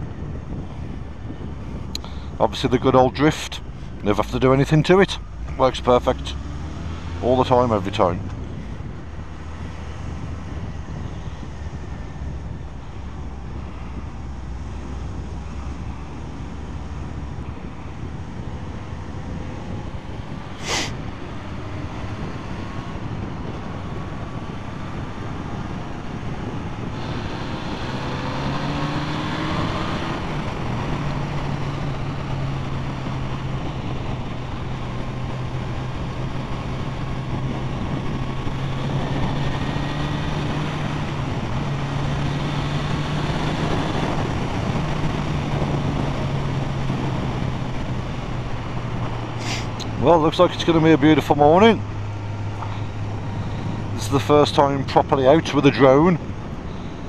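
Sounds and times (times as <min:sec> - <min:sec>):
wind and road noise: 0:00.0 - 0:57.0
motorcycle engine revving: 0:04.1 - 0:11.5, 0:19.6 - 0:56.0.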